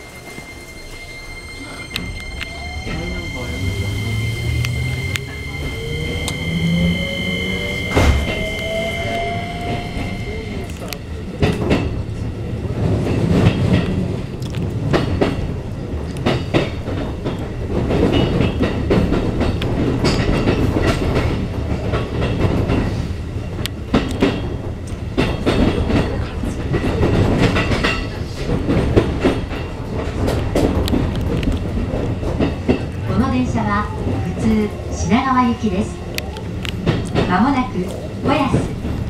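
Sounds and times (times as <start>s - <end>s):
train wheels rumbling on rail: 0.0s - 39.0s
wheels clattering over rail joints: 12.8s - 39.0s.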